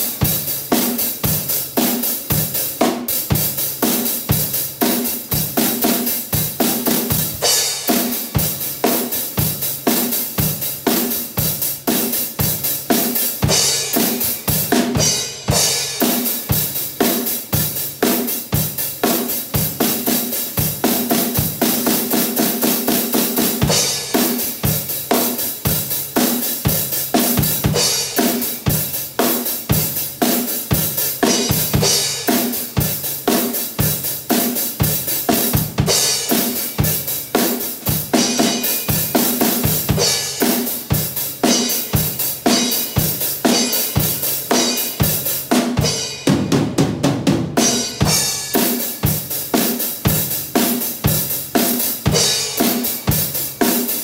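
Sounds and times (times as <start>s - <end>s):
drum kit rock beat: 0.0s - 54.0s.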